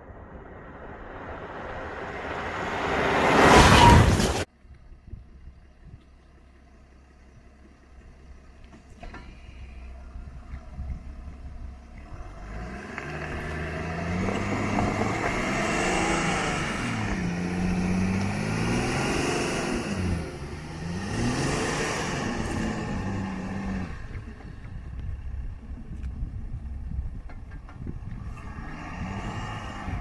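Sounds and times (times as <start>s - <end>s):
engine revving under load: 12.0s - 24.6s, 28.0s - 30.0s.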